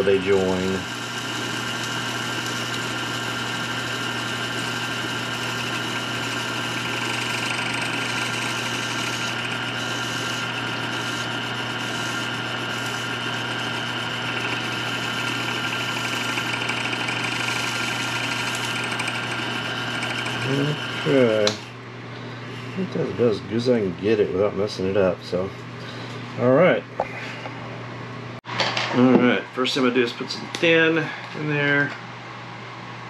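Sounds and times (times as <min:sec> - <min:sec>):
wood lathe motor hum: 0:00.0 - 0:21.8.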